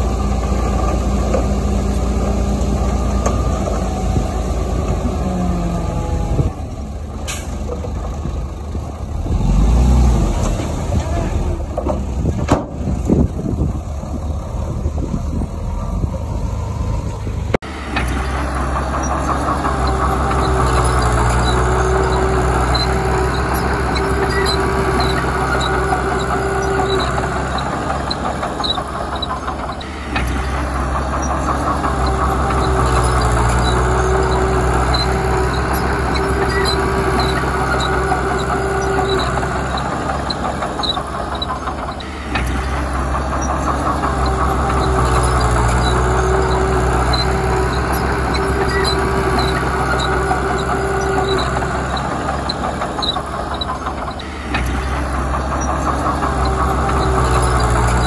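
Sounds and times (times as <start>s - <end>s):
bulldozer diesel engine under load: 0.0s - 58.0s
tracks ticking: 17.2s - 58.0s.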